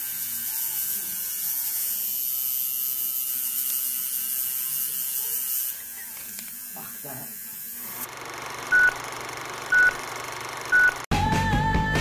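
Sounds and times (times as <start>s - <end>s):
tattoo machine buzzing: 0.0s - 10.7s.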